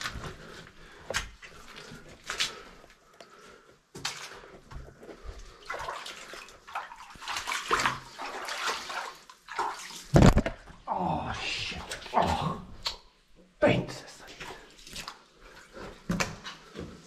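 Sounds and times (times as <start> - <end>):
feet splashing through muddy water: 5.4 - 10.1.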